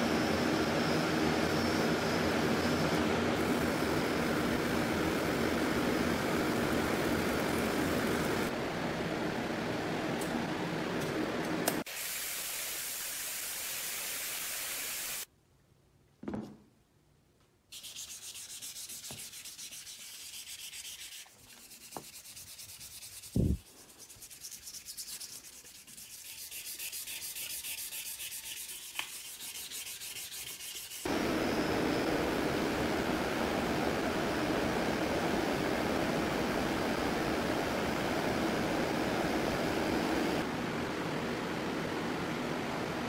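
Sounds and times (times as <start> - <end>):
sandpaper sanding strokes: 17.7 - 31.1.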